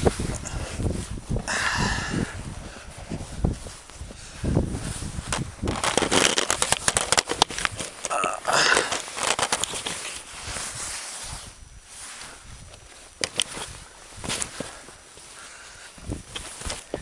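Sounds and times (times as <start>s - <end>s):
camera handling noise: 5.3s - 10.3s, 13.2s - 13.7s.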